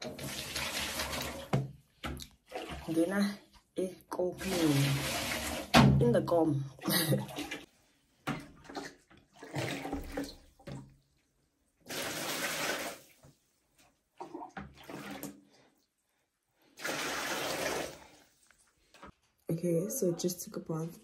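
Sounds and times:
water poured from a jug splashing: 0:00.0 - 0:01.7, 0:02.4 - 0:03.0, 0:04.4 - 0:05.8, 0:08.6 - 0:10.9, 0:11.8 - 0:13.2, 0:14.2 - 0:15.5, 0:16.7 - 0:18.2.

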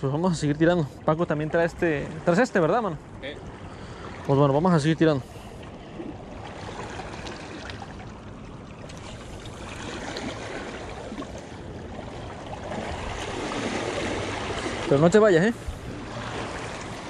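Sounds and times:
seawater washing against rocks: 0:01.2 - 0:17.0.

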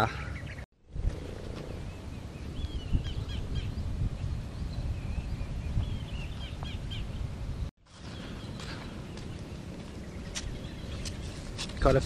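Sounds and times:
wind buffeting microphone: 0:00.4 - 0:12.0
bird chirping: 0:01.7 - 0:07.3, 0:07.9 - 0:11.5.

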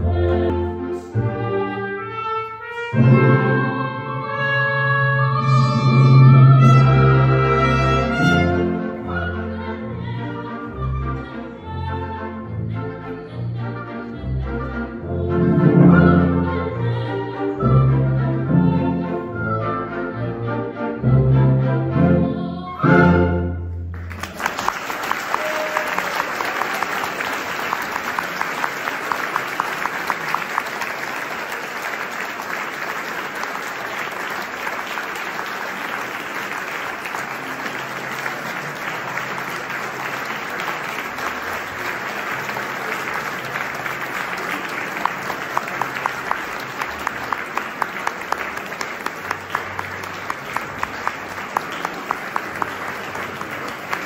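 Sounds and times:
audience applauding: 0:23.9 - 0:54.0.

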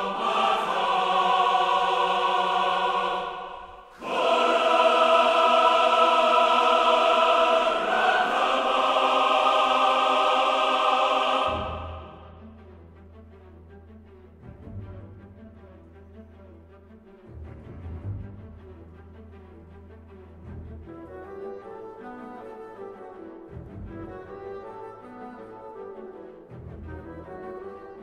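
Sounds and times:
choir singing held chords: 0:00.0 - 0:12.4.

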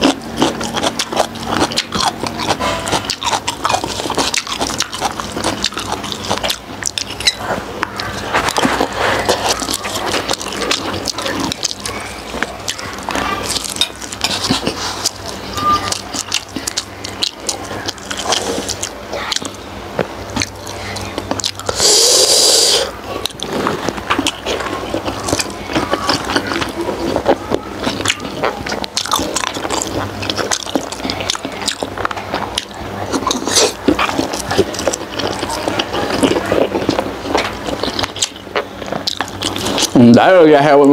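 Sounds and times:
close-up chewing and smacking: 0:00.0 - 0:40.9
loud hiss: 0:21.8 - 0:22.9.

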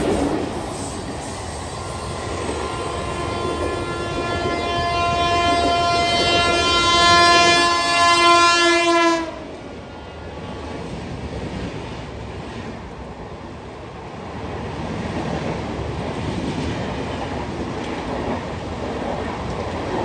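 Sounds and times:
train wheel clatter: 0:00.0 - 0:07.6
train rumble: 0:00.0 - 0:20.0
locomotive air horn blast: 0:01.8 - 0:09.5.

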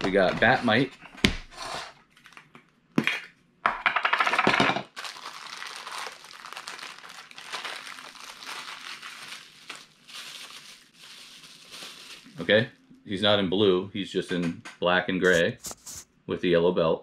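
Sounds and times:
plastic bag crinkling: 0:05.0 - 0:12.7.

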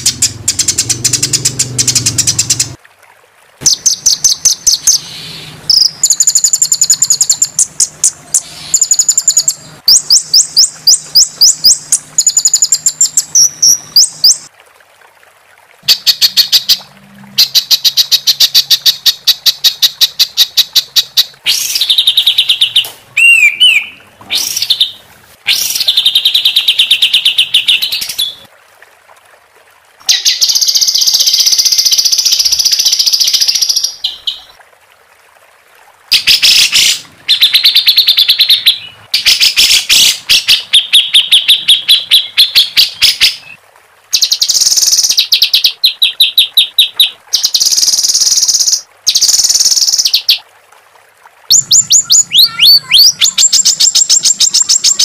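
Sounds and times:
songbird trilling: 0:03.6 - 0:14.5, 0:21.5 - 0:24.9, 0:51.5 - 0:55.0.

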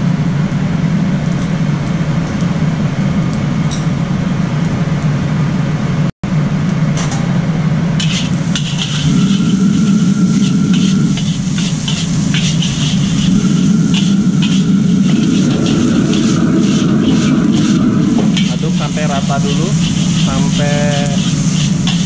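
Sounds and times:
wok burner rumbling: 0:00.0 - 0:22.0
metal ladle scraping a wok: 0:08.0 - 0:22.0.

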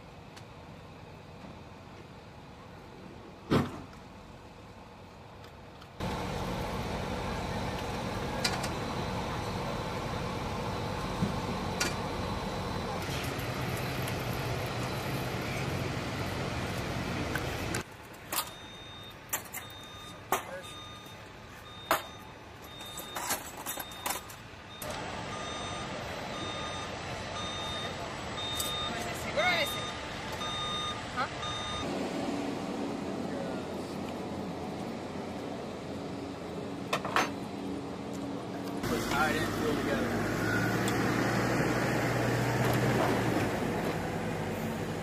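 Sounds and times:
vehicle backup alarm beeping: 0:06.0 - 0:15.8, 0:17.7 - 0:32.0, 0:38.9 - 0:40.9
distant engine drone: 0:06.0 - 0:22.9, 0:24.0 - 0:45.0.

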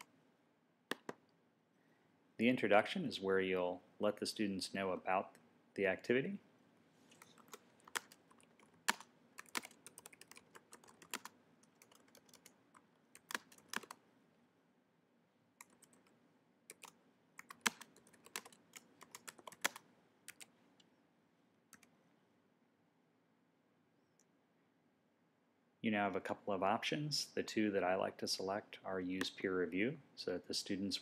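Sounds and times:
typing on computer keyboard: 0:07.2 - 0:12.6, 0:13.2 - 0:14.0, 0:15.6 - 0:16.1, 0:16.7 - 0:20.5.

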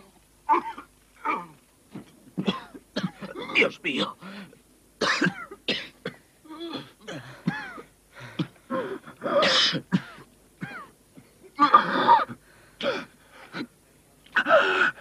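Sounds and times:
man coughing and gasping: 0:00.5 - 0:04.2, 0:05.0 - 0:06.2, 0:07.0 - 0:13.7.

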